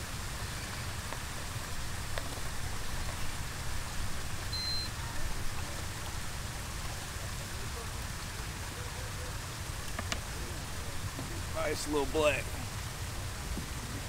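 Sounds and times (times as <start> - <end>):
wind rumble on microphone: 0.0 - 11.6, 12.4 - 14.0
rushing water hiss: 0.0 - 14.0
short high beep: 4.5 - 5.0.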